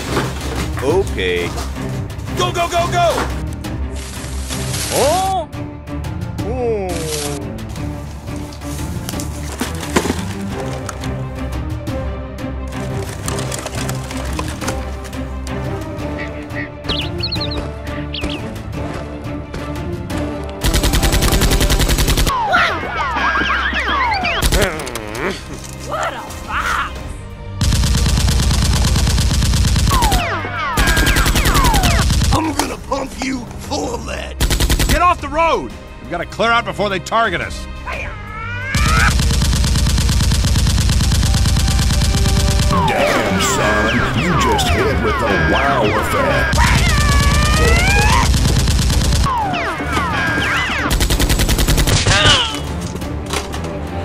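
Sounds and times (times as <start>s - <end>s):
background music: 0.0s - 54.0s
automatic gunfire: 20.6s - 22.3s, 27.6s - 32.4s, 34.4s - 35.0s, 38.8s - 42.8s, 46.7s - 49.4s, 50.9s - 52.2s.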